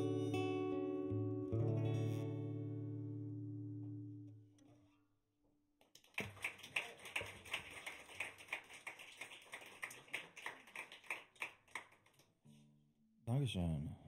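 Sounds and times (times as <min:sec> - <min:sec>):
light applause: 0:05.9 - 0:12.3.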